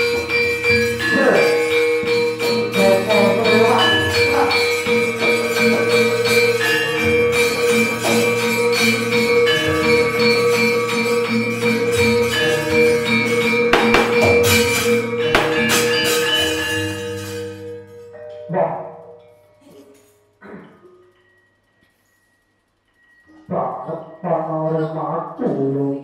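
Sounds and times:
metallic jangling strikes: 0.0s - 18.2s
metallophones ringing: 0.0s - 25.4s
clattering strikes: 12.0s - 18.2s.

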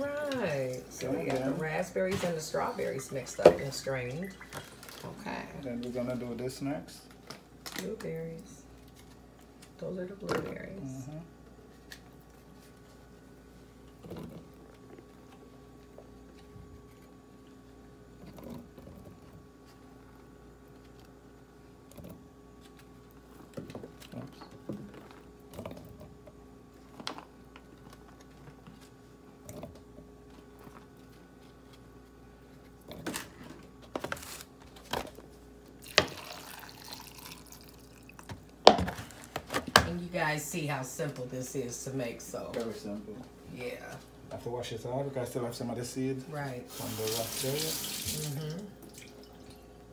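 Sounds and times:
faint steady hum: 0.0s - 49.9s
water pouring from plastic jug: 35.8s - 38.2s.

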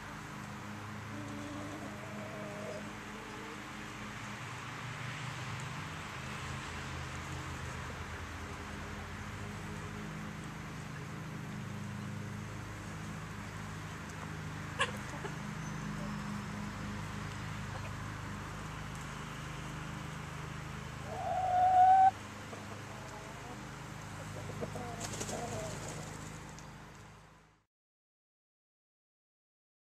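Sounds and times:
chicken squawking: 21.0s - 22.1s
chicken clucking: 21.0s - 23.6s, 24.2s - 26.2s.

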